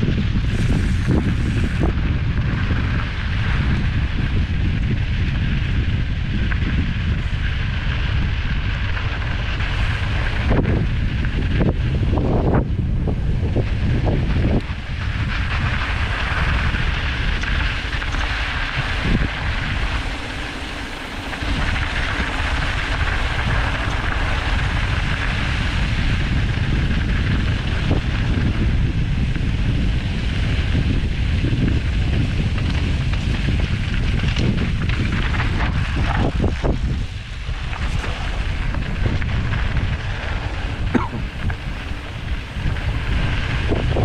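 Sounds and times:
wind buffeting microphone: 0.0 - 44.0
tyres crunching on gravel: 14.4 - 25.8.

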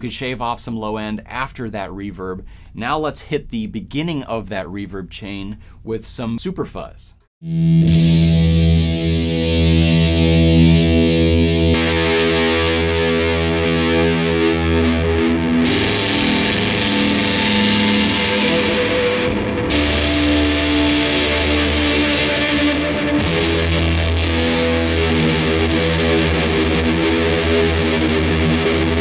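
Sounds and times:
distorted electric guitar chords: 7.4 - 29.0.

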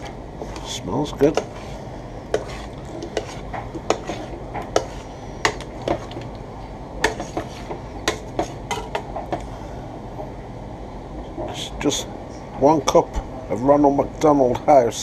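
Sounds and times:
metal spoon scraping a pot: 0.4 - 6.3, 7.0 - 9.0.

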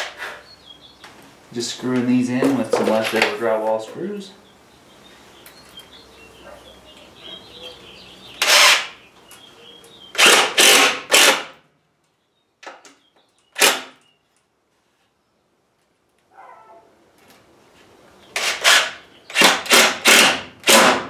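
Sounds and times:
cordless drill driving screws: 8.4 - 8.9, 10.2 - 11.5, 18.4 - 21.0.

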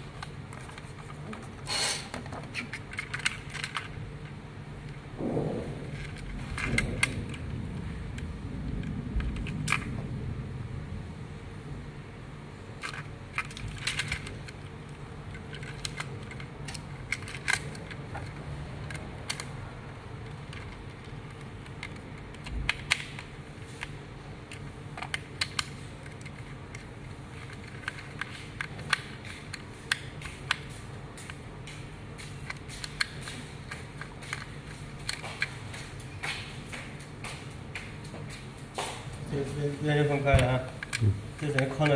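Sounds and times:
plastic toy clicking and rattling: 0.0 - 4.4, 5.9 - 7.6, 12.8 - 30.7, 40.3 - 41.9
steady low hum: 0.0 - 41.9.

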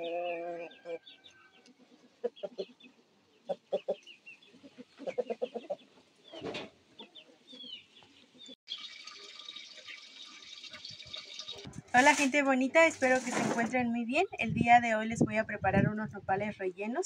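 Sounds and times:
chickens clucking: 0.0 - 8.6
small birds chirping: 0.0 - 11.7.

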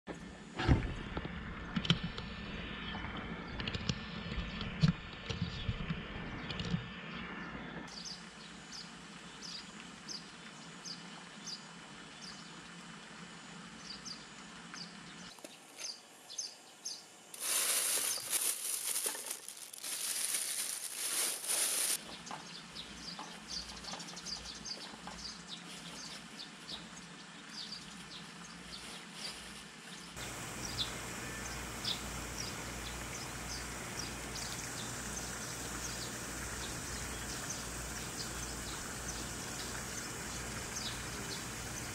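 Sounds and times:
loud high-pitched hiss: 17.3 - 22.0, 30.2 - 41.9.

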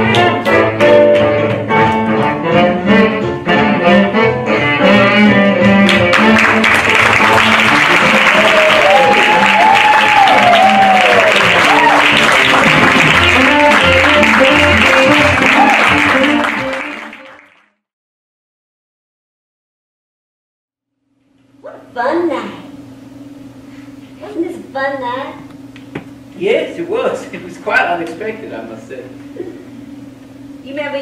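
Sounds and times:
instrumental music with picked notes: 0.0 - 8.4, 11.4 - 17.3
audience applauding: 5.8 - 17.7
audience cheering: 6.1 - 17.5.

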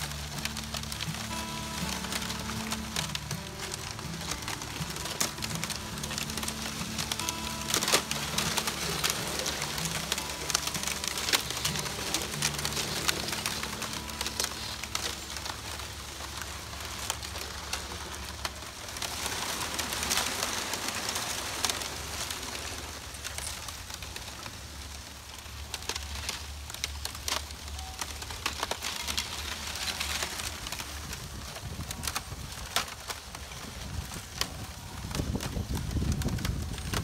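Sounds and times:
ice shards crackling and clinking: 0.0 - 37.0.

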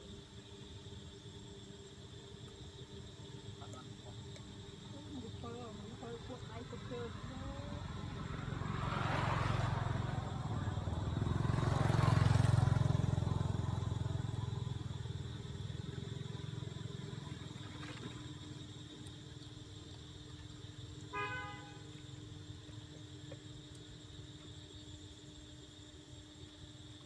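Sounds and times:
vehicles passing on road: 7.1 - 16.6.

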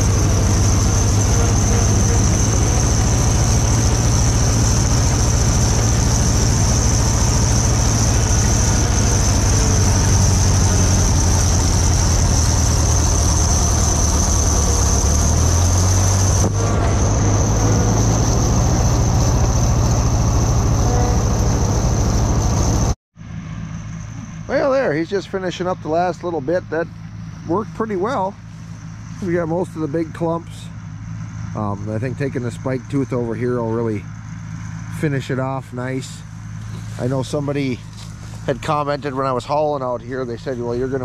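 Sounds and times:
farm machinery engines running: 0.0 - 41.0
high-pitched whine: 0.0 - 41.0.

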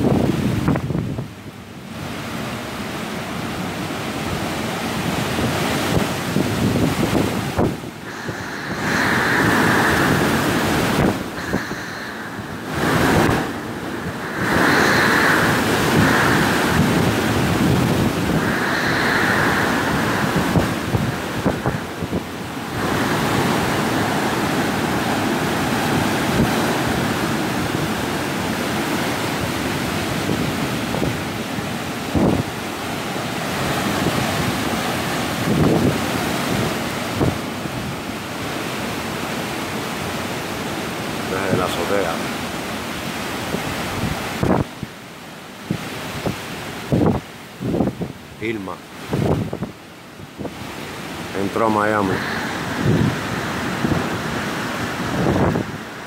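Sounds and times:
wind buffeting microphone: 0.0 - 39.3, 43.0 - 45.0, 45.6 - 56.0
strong wind gusting: 0.0 - 56.0
driving rain: 2.0 - 38.7, 50.4 - 56.0
high wind whistle: 3.7 - 37.7, 52.0 - 56.0.

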